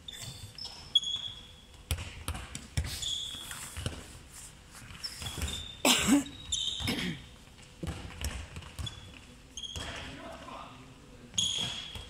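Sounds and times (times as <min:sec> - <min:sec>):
sneaker squeaks: 0:00.0 - 0:10.2, 0:11.3 - 0:12.0
balls bouncing on wooden floor: 0:00.6 - 0:03.0, 0:07.6 - 0:10.1.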